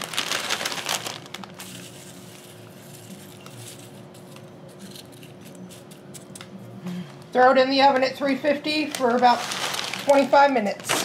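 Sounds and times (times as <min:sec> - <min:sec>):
tortilla chips crackling: 0:00.0 - 0:06.2, 0:08.8 - 0:11.0.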